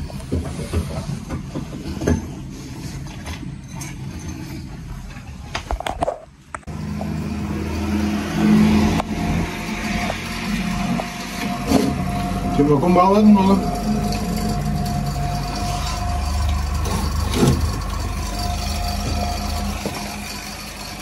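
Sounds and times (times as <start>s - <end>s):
handling knocks and clatter: 0.0s - 6.3s, 13.7s - 21.0s
vacuum pump humming: 6.7s - 21.0s.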